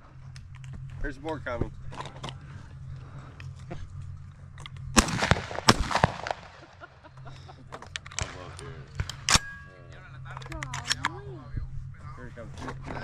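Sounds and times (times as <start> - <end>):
shotgun shots: 5.0 - 6.8, 8.1 - 9.6.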